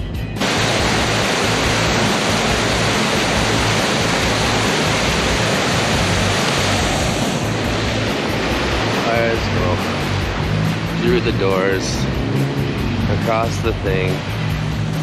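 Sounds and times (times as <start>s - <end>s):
waterfall roaring: 0.4s - 12.3s.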